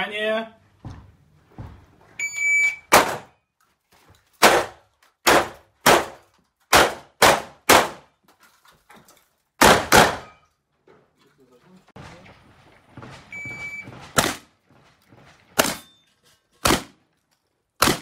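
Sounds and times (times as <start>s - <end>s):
shot timer beep: 2.2s - 2.9s
shotgun shots: 2.9s - 3.3s, 4.4s - 8.1s, 9.6s - 10.4s, 14.2s - 14.5s, 15.6s - 15.9s, 16.6s - 17.0s, 17.8s - 18.0s.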